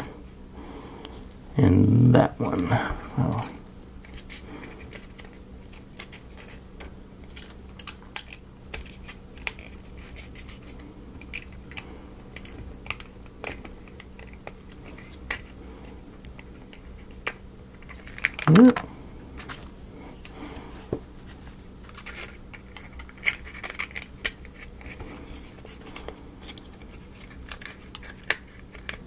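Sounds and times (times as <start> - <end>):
faint steady hum: 0.0 - 29.0
wooden pieces clicking and tapping: 4.9 - 15.5, 26.4 - 29.0.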